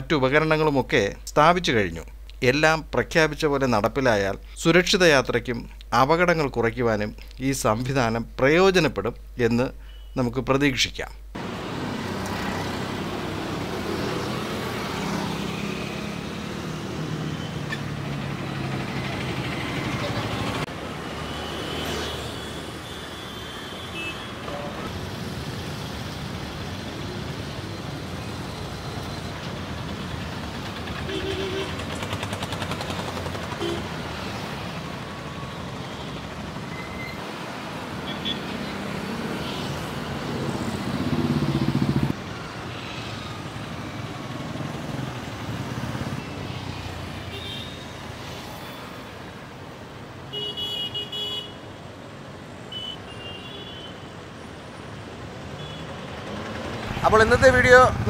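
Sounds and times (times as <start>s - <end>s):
road traffic rumble: 11.2s - 58.0s
loud passing vehicle: 11.4s - 22.5s, 37.3s - 47.3s, 56.1s - 58.0s.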